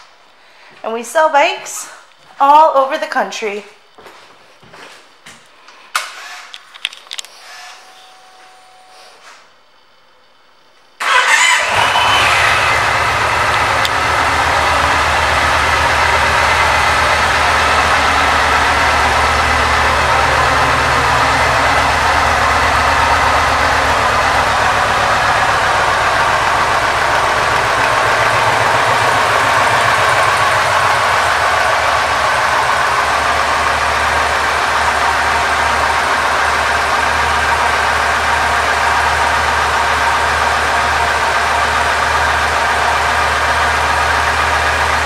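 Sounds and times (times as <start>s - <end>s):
motorcycle engine idling: 11.0s - 45.0s
motorcycle engine starting: 11.0s - 45.0s.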